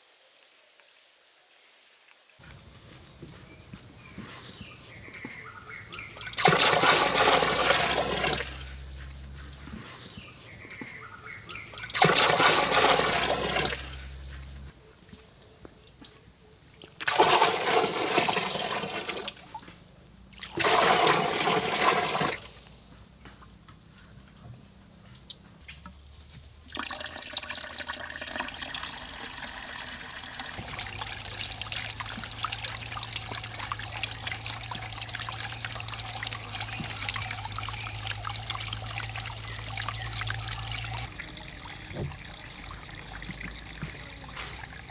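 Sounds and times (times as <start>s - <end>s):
water splashing gushes: 6.3s - 8.6s, 11.8s - 13.9s, 17.0s - 19.4s, 20.4s - 22.5s, 26.8s - 42.1s
water trickling over rocks: 26.7s - 43.9s.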